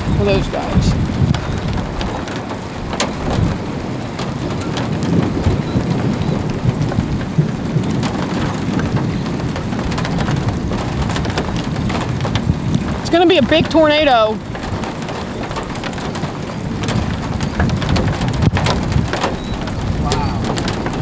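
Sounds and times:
rain drops ticking on a car: 0.0s - 21.0s.

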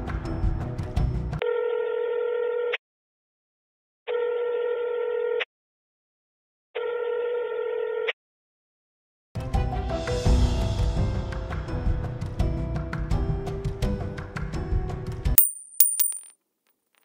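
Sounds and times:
music: 0.0s - 1.4s, 9.4s - 15.4s.

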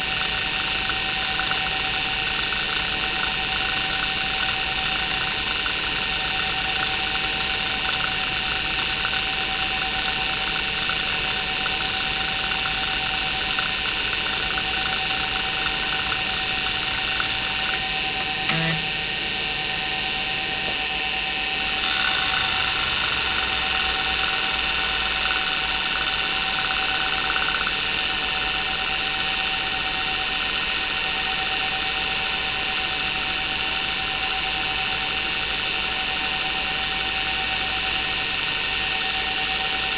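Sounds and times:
hard drive spinning whine: 0.0s - 39.9s
hard drive seek chatter: 0.1s - 19.2s, 21.7s - 30.5s.

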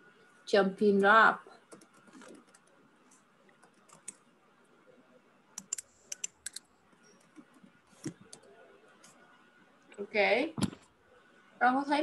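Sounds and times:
computer keyboard typing: 1.7s - 2.8s, 3.5s - 4.2s, 5.6s - 8.5s.

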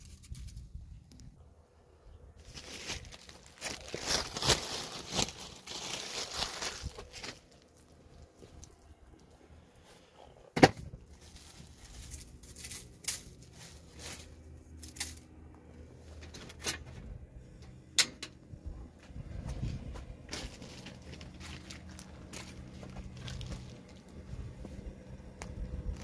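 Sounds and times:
plastic bag crinkling: 2.4s - 8.9s.

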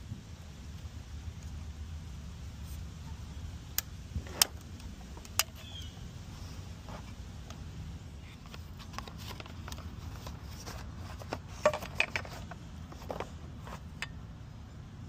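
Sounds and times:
steady low rumble: 0.0s - 11.6s
clicks and rustles of unpacking: 8.2s - 14.1s.

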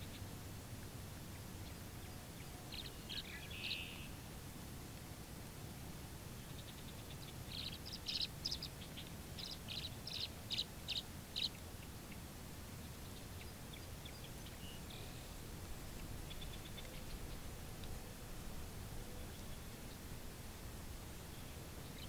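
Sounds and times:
low background noise: 0.0s - 22.0s
swallows twittering: 2.4s - 4.1s, 6.5s - 11.6s, 16.2s - 17.5s.

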